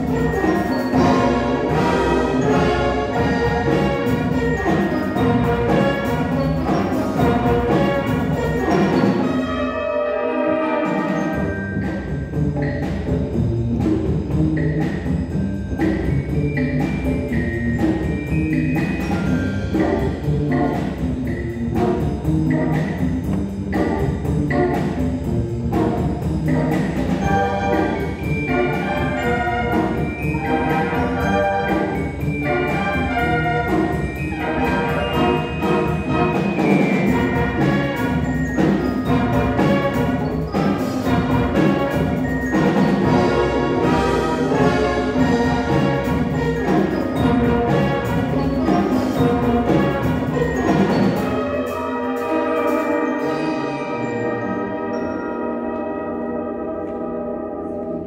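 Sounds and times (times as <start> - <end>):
trumpets: 0.0 - 11.5, 26.6 - 58.0
horns: 0.0 - 12.9, 25.7 - 58.0
percussion: 0.0 - 58.0
trombones: 0.0 - 58.0.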